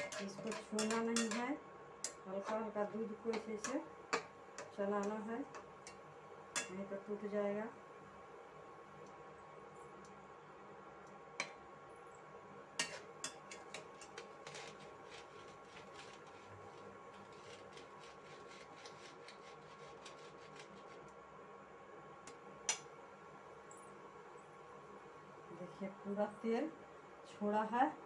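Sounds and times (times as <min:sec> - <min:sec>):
metal spatula knocking pan: 0:00.0 - 0:01.6
faint hum: 0:00.0 - 0:28.0
milk simmering with faint ticks: 0:09.0 - 0:10.2, 0:11.0 - 0:11.6, 0:18.8 - 0:21.2, 0:22.2 - 0:22.9.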